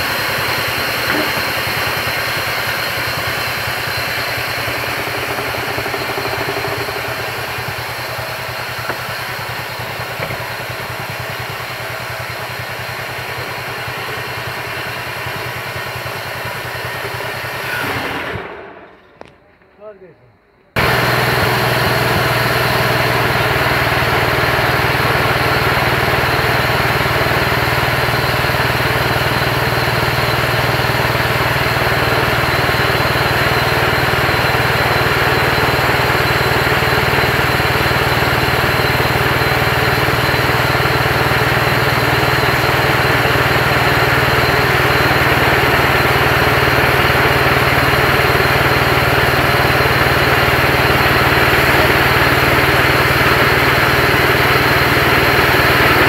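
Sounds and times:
sawmill engine running: 0.0s - 56.0s
band blade cutting log: 0.8s - 2.0s.

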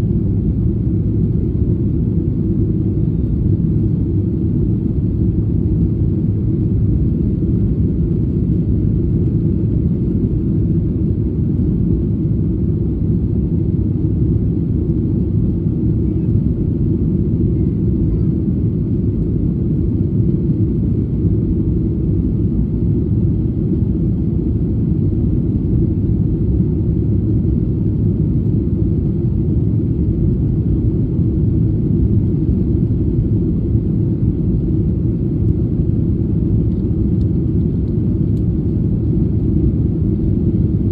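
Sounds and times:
jet engines rumbling in cabin: 0.0s - 40.9s.

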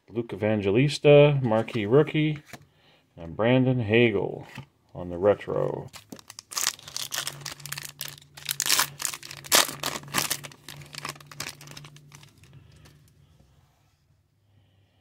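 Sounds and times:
foil wrapper crinkling: 5.9s - 12.9s.

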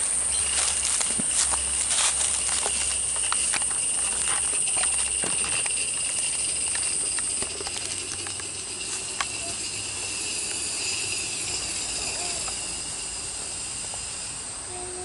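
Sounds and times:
footsteps on dry leaves: 0.0s - 11.4s
high-pitched insect drone: 0.0s - 15.0s.

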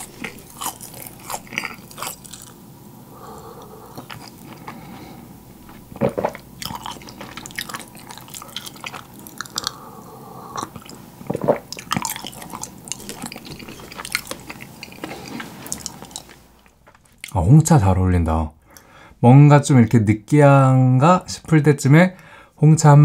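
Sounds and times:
wet chewing and mouth clicks: 0.0s - 2.6s, 3.9s - 4.9s, 5.6s - 9.8s, 10.6s - 17.4s
sipping and swallowing tea: 3.2s - 16.8s.

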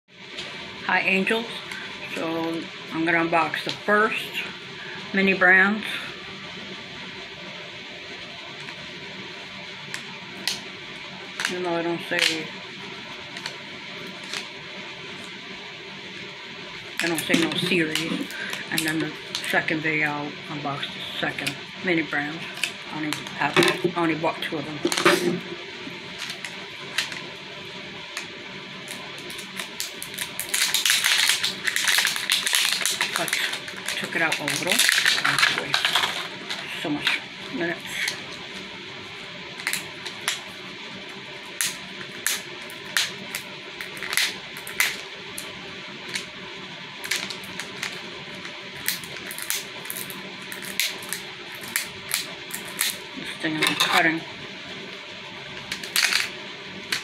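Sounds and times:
faint steady hum: 0.1s - 57.0s
plastic wrapper crinkling: 11.4s - 14.6s, 16.9s - 19.6s, 22.4s - 23.9s, 24.8s - 54.0s, 54.8s - 57.0s.

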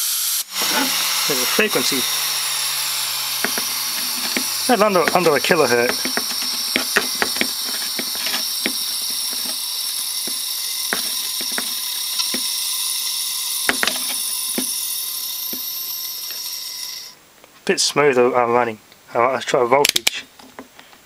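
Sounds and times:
compressed air hiss: 0.0s - 17.2s
thin steady tone: 0.6s - 17.2s
clicks and scrapes from disc: 5.9s - 9.6s.

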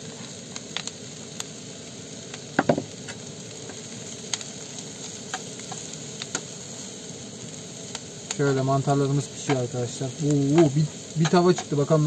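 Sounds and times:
mushrooms sizzling in frying pan: 0.0s - 12.0s
knocks on pan: 2.6s - 2.9s.

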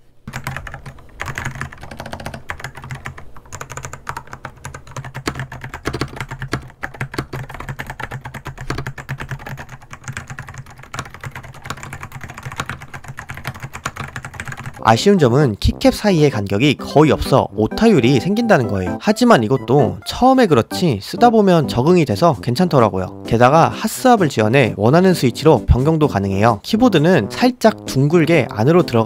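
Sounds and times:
clicky mechanical keyboard typing: 0.3s - 14.9s.

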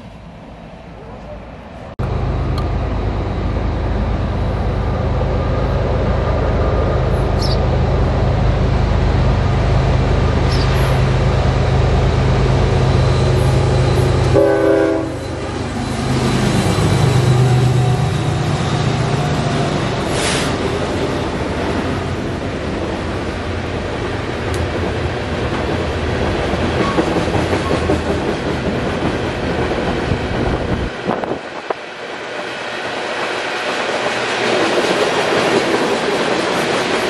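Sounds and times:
diesel locomotive engine drone: 0.0s - 37.0s
train horn blast: 14.2s - 15.4s.

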